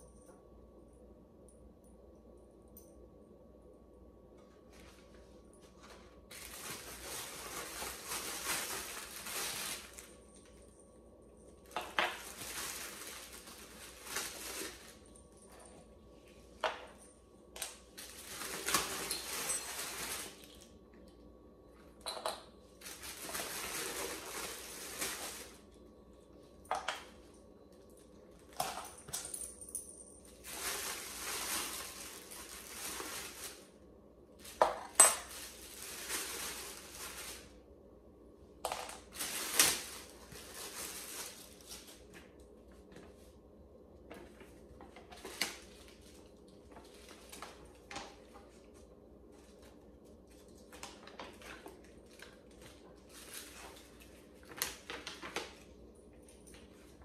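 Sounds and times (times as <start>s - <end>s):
plastic bag crinkling: 5.7s - 10.7s, 11.6s - 15.6s, 17.8s - 20.8s, 22.8s - 25.8s, 30.3s - 33.8s, 34.4s - 37.6s, 39.0s - 42.4s, 49.4s - 55.6s.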